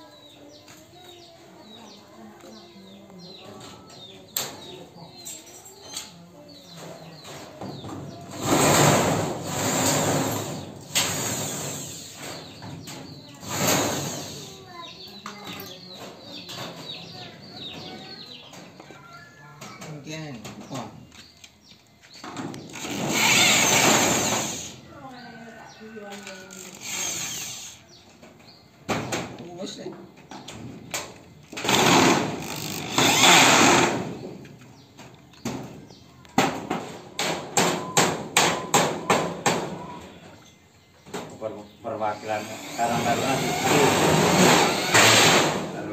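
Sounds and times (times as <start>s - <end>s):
electric drill boring sheet metal: 9.5s - 12.2s, 22.8s - 24.8s, 26.6s - 27.8s, 31.6s - 34.0s, 42.2s - 45.5s.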